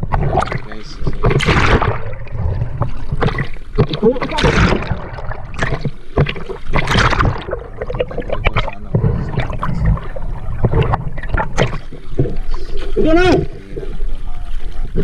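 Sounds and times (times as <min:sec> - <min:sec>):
sea water splashing: 0:00.0 - 0:15.0
low rumble: 0:07.1 - 0:15.0.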